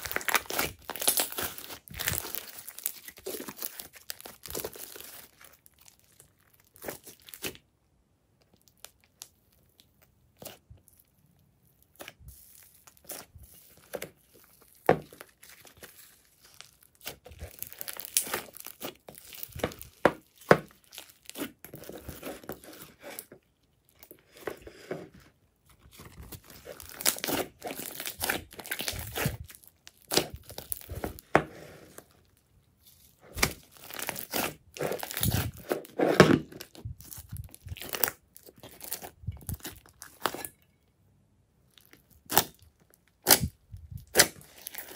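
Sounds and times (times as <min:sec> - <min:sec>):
slime squelching and crackling: 0:00.0 - 0:07.7, 0:08.4 - 0:40.7, 0:41.6 - 0:44.9.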